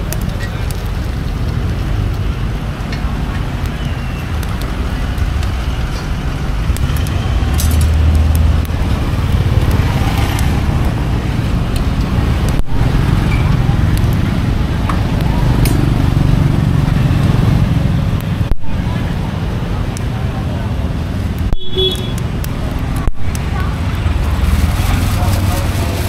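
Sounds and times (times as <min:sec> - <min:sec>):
motor traffic rumble: 0:00.0 - 0:26.0
engine passing: 0:05.0 - 0:21.1, 0:22.2 - 0:26.0.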